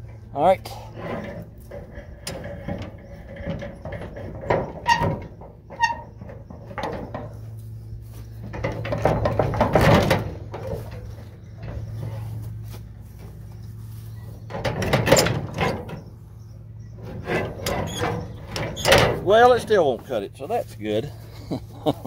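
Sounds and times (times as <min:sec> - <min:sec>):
metallic clicks and clanks: 0:00.0 - 0:07.3, 0:08.4 - 0:12.1, 0:14.5 - 0:16.0, 0:17.0 - 0:20.2.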